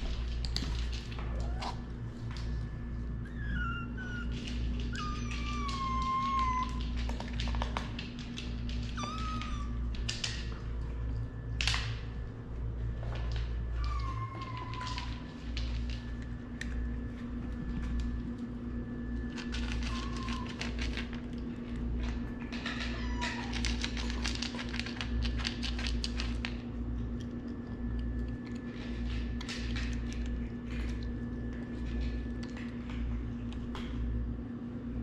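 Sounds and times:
steady low hum: 0:00.0 - 0:35.0
kittens mewing: 0:03.3 - 0:07.0, 0:13.8 - 0:15.3, 0:19.8 - 0:21.0, 0:22.6 - 0:24.0.

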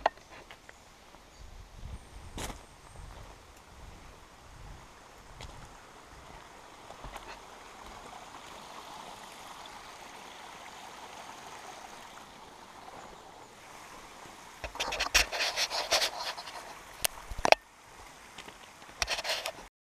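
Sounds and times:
stream trickling: 0:00.0 - 0:19.7
footsteps on gravel: 0:02.4 - 0:04.2, 0:05.4 - 0:08.1.

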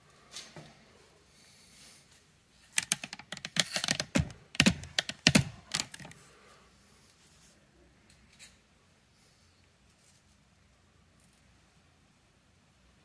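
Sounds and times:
hand tools clicking and tapping: 0:02.8 - 0:06.2.

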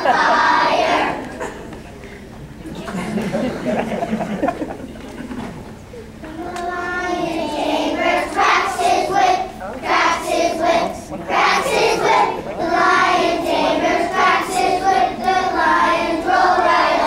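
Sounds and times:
young children singing: 0:00.0 - 0:01.7, 0:06.1 - 0:17.0.

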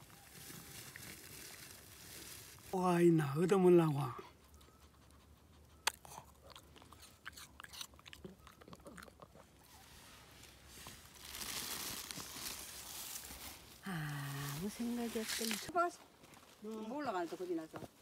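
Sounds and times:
dog crunching a treat: 0:05.8 - 0:09.6.

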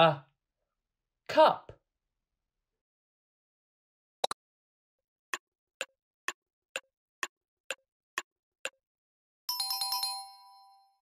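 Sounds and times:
clock ticking: 0:05.3 - 0:08.8.

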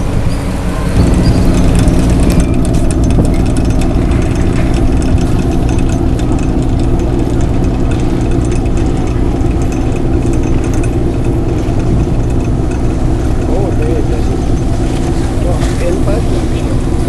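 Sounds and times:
diesel engine droning: 0:00.0 - 0:17.0.

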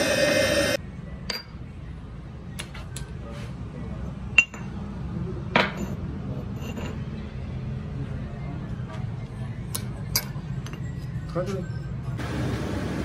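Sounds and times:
loud steady sound: 0:00.0 - 0:00.8.

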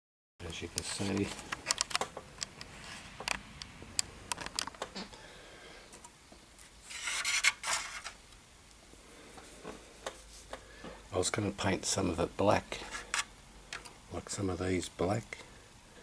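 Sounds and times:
plastic base scraping on mat: 0:06.8 - 0:08.2.

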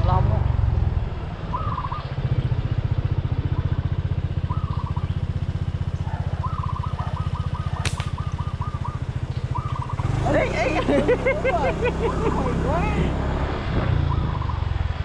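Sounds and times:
motorcycle engine running: 0:00.0 - 0:15.0
sharp click: 0:07.8 - 0:08.2.

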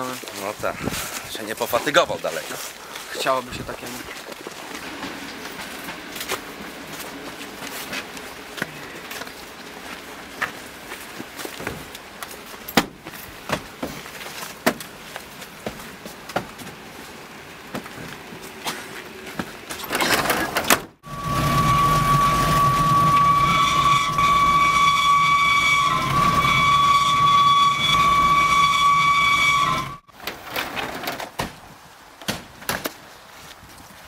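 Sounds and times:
knocks and shuffling: 0:00.0 - 0:34.0
loud high whistle-like tone: 0:21.0 - 0:30.1.

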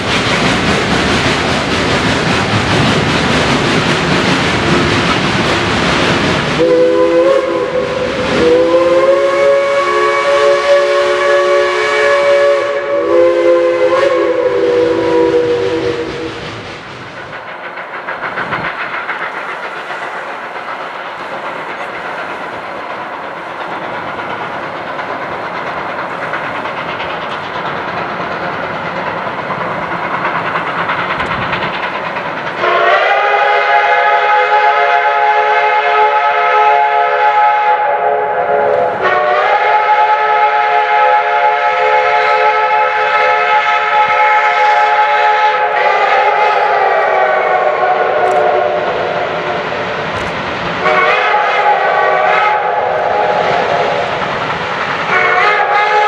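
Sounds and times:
steam locomotive exhaust beats: 0:00.0 - 0:56.0
chime steam whistle: 0:06.6 - 0:16.4, 0:32.6 - 0:49.6, 0:50.8 - 0:54.1.

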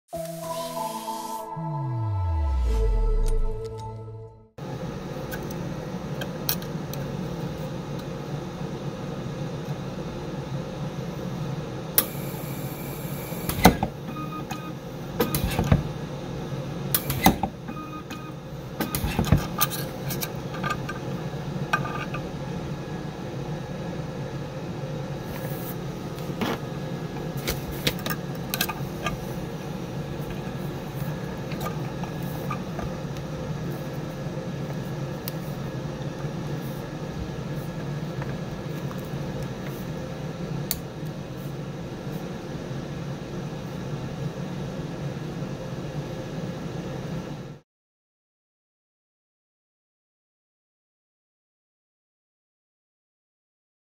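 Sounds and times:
high whine: 0:00.1 - 0:05.0
low hum: 0:00.2 - 0:04.7.

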